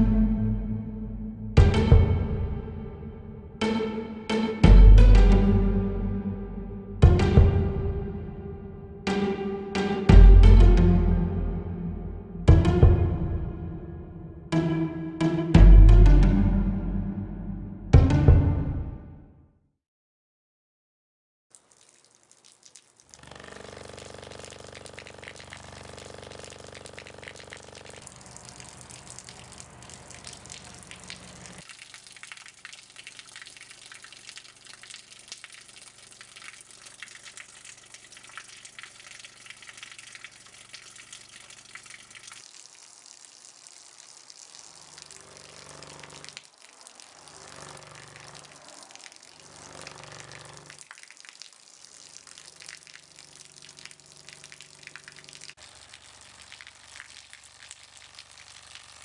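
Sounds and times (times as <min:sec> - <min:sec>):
low hum: 0:00.0 - 0:09.1
water stream splashing: 0:21.5 - 0:59.0.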